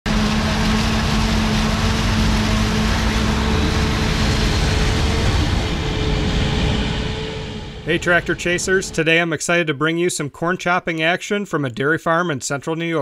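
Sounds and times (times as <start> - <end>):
forage harvester engine drone: 0.0 - 9.3
pitched machinery hums: 0.1 - 9.1.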